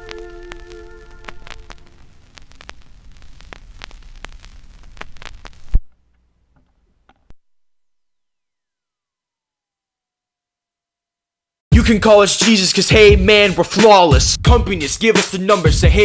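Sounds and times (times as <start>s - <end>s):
musical chord: 0.0s - 2.0s
crackling static: 0.0s - 8.7s.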